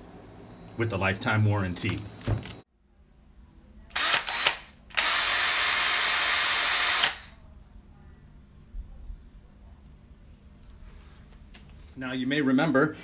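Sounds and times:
cordless drill spinning: 0:03.9 - 0:07.3.

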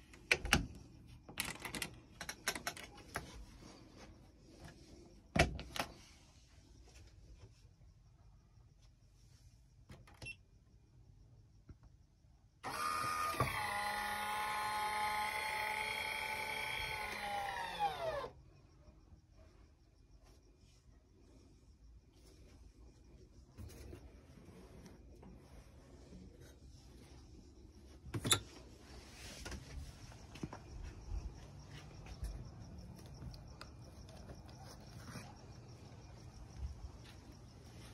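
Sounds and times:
crickets chirping: 0:00.0 - 0:12.6, 0:13.4 - 0:37.9
vent fan motor whine: 0:12.6 - 0:18.3.

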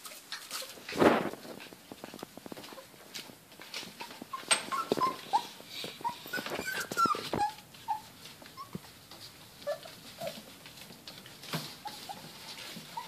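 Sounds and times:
scratchy rustling: 0:00.0 - 0:13.0
puppies whimpering and yipping: 0:03.7 - 0:13.0.

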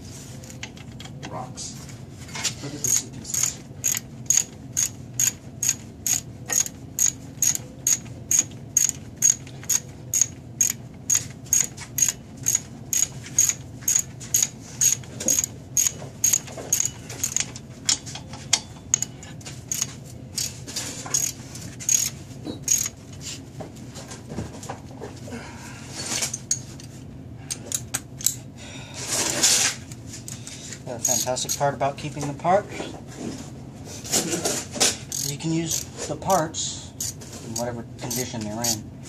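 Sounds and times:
ratchet wrench clicking: 0:02.8 - 0:18.1, 0:19.7 - 0:23.0, 0:31.0 - 0:31.6, 0:35.1 - 0:35.9, 0:37.0 - 0:38.8.

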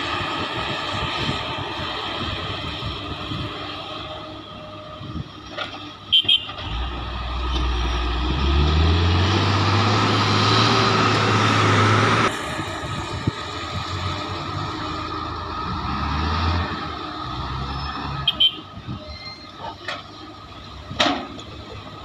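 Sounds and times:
dump truck engine: 0:00.0 - 0:22.0
excavator diesel engine: 0:00.0 - 0:22.0.

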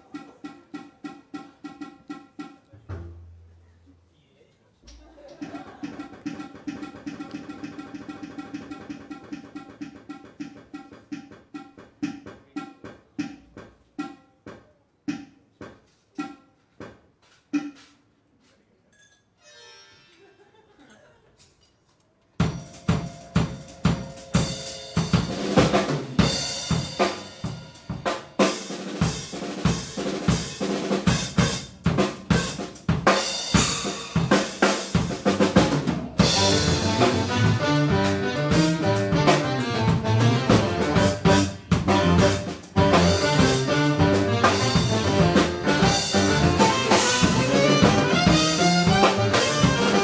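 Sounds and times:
loud drum kit: 0:00.0 - 0:03.5, 0:05.4 - 0:18.1, 0:22.4 - 0:50.0
jazz fusion band: 0:22.4 - 0:50.0.

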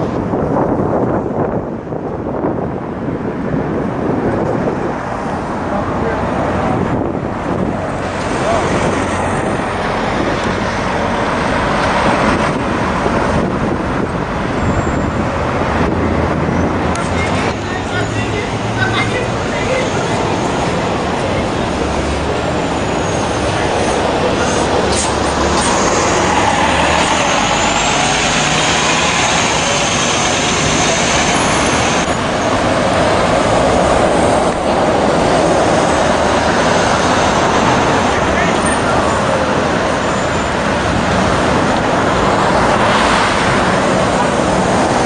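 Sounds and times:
bus driving off: 0:00.0 - 0:45.0
loud city traffic noise: 0:00.0 - 0:45.0
car passing close by: 0:18.4 - 0:45.0.

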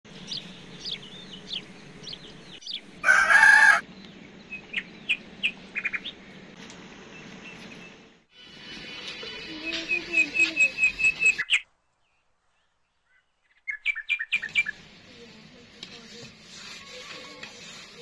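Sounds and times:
small birds chirping: 0:00.1 - 0:08.2, 0:09.8 - 0:18.0
rooster crowing: 0:03.0 - 0:03.8.

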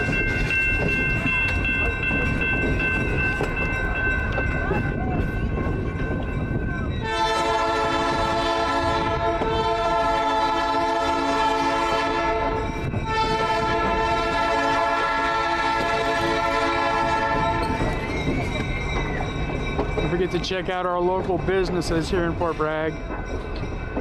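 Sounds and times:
moving train rumble: 0:00.0 - 0:24.0
locomotive horn blasts: 0:07.0 - 0:17.7.

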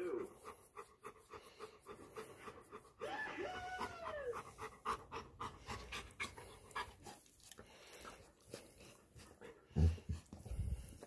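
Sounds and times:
dog panting: 0:00.0 - 0:03.1, 0:03.8 - 0:11.0
dog whining: 0:03.0 - 0:04.6.

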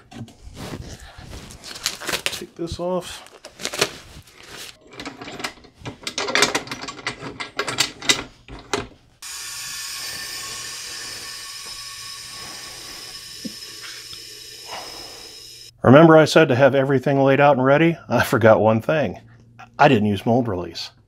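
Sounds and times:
gloves clicking and rustling: 0:00.0 - 0:04.8
compressed air hissing: 0:09.2 - 0:15.7.

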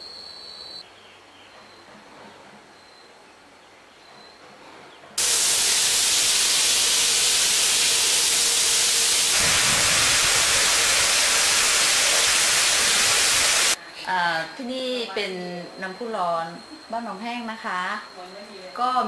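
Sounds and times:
water gushing from a tap: 0:05.2 - 0:13.8.

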